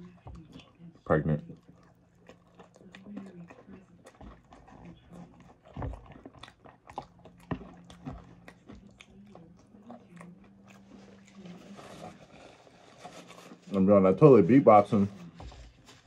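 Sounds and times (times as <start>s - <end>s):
chewing and crunching salad: 0.0s - 16.0s
fork scraping plastic bowl: 11.0s - 15.8s.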